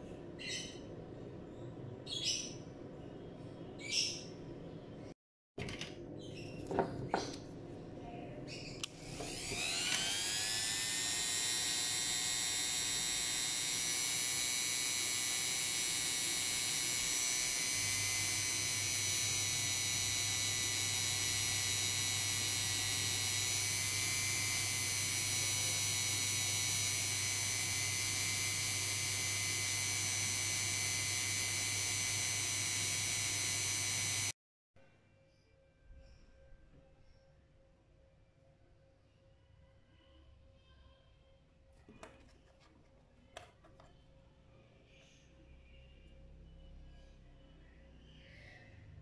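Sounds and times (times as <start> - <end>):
rotary tool motor whining: 8.8 - 34.4.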